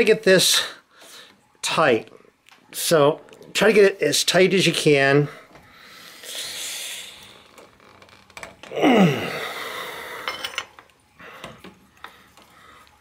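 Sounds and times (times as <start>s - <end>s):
man exhaling: 5.5s - 7.4s, 8.7s - 10.3s
man groaning with effort: 8.7s - 9.6s.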